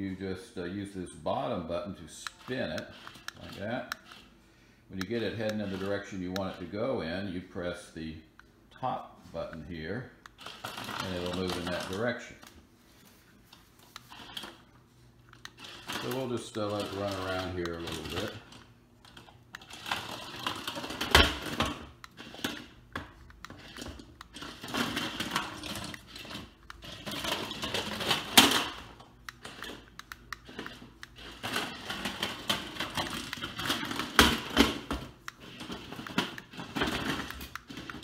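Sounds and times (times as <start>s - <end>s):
toy ball rattling and whirring: 2.1s - 4.4s, 5.0s - 6.8s, 10.3s - 12.2s, 15.3s - 38.0s.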